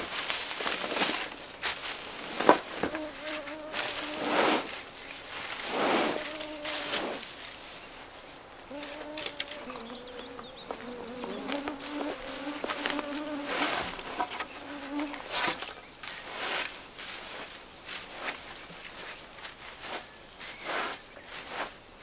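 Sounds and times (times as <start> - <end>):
rustles in undergrowth: 0.0 - 22.0
flying insect buzzing: 2.8 - 4.8, 5.7 - 7.3, 8.7 - 15.6.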